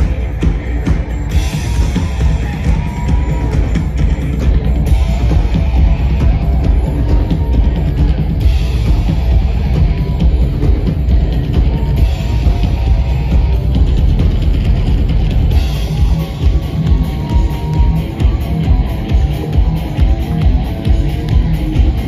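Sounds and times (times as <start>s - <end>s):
loud rock band playing: 0.0s - 22.0s
pounding drum kit: 0.0s - 22.0s.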